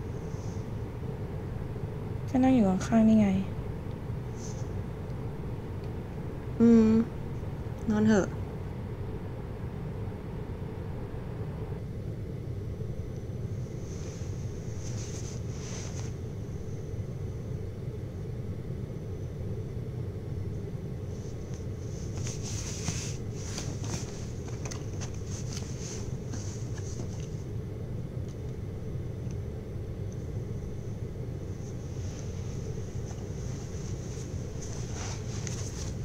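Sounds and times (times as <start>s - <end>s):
low room noise rumble: 0.0s - 36.0s
bedding and clothing rustling: 13.7s - 16.6s, 21.0s - 27.5s, 31.5s - 36.0s.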